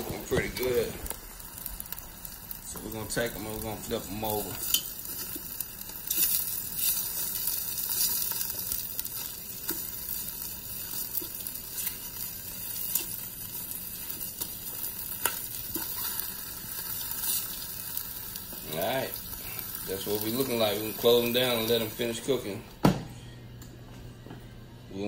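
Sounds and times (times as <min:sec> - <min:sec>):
chicken wings sizzling: 0:00.0 - 0:22.6.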